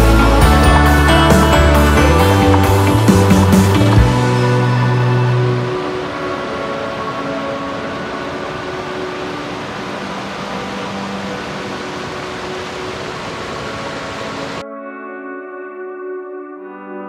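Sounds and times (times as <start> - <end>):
whitewater tumbling over rocks: 0.1 - 14.6.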